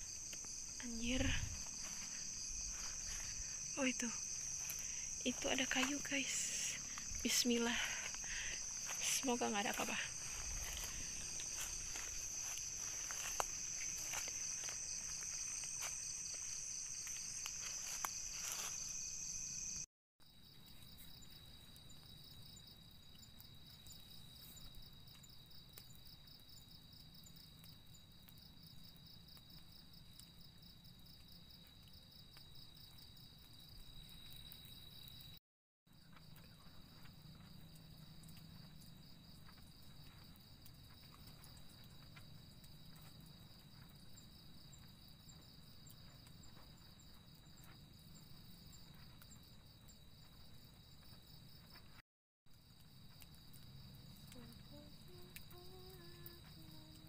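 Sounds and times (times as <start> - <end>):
footsteps rustling through grass: 0.0 - 6.2, 7.0 - 19.3
crickets chirring: 0.0 - 35.4, 36.0 - 57.0.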